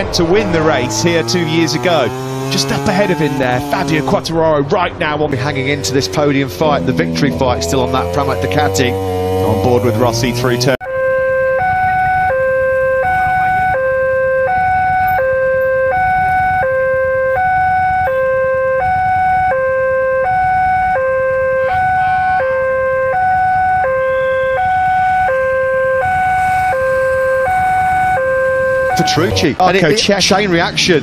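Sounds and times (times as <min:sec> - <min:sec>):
low rumble of traffic: 0:00.0 - 0:31.0
level crossing two-tone alarm: 0:10.8 - 0:29.6.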